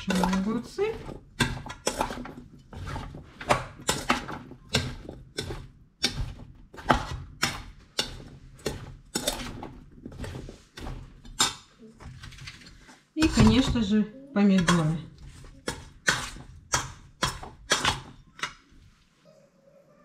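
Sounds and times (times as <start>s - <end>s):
spoon scraping metal bowl: 0.0s - 13.7s.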